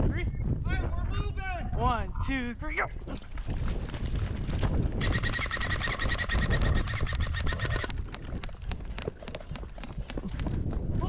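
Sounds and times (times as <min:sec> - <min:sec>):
running footsteps: 0:03.2 - 0:11.0.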